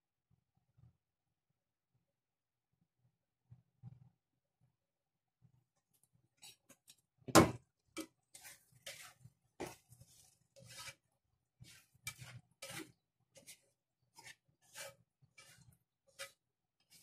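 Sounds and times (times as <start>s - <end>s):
spatula scraping and tapping pan: 6.4s - 17.0s.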